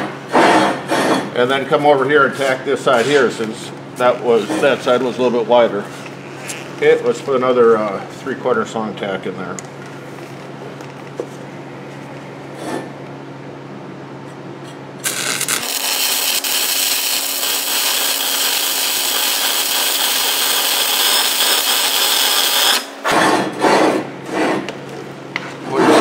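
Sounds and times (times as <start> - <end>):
welding arc crackling: 15.0 - 22.9.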